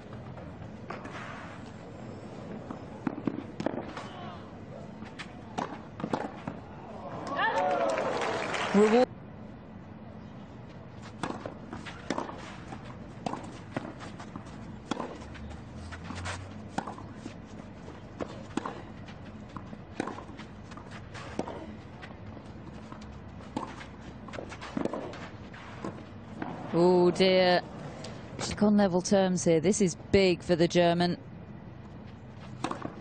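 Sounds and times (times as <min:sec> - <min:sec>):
tennis ball struck by rackets: 0:03.0 - 0:04.1, 0:05.5 - 0:06.6, 0:11.2 - 0:17.2, 0:18.2 - 0:18.9, 0:19.5 - 0:21.6, 0:23.0 - 0:26.7, 0:32.6 - 0:33.0.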